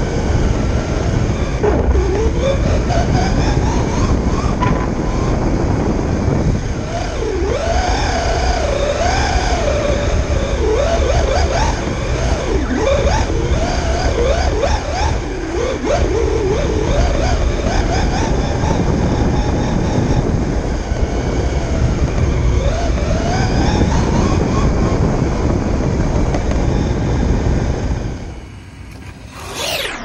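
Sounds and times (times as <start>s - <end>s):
electric motor whining: 0.0s - 30.0s
rushing noise of motion: 24.0s - 30.0s.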